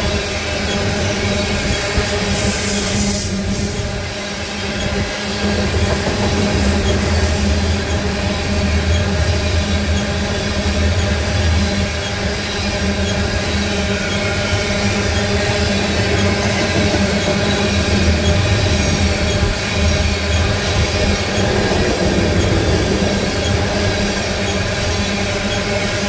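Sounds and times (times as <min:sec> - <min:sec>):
faint regular ticking: 0:00.0 - 0:26.0
steel wheels on rails: 0:00.0 - 0:26.0.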